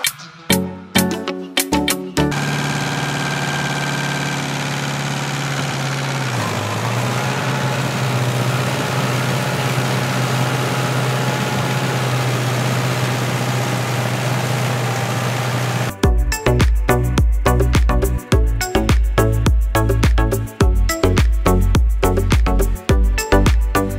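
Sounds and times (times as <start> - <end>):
small electric motors humming: 2.3 - 15.9.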